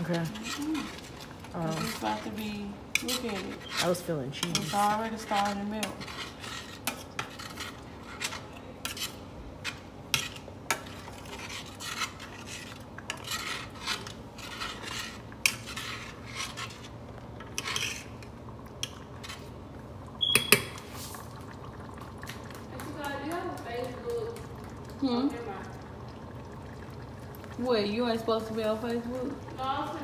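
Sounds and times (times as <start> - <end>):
spoon scraping a saucepan: 0.0 - 19.5, 20.2 - 21.2.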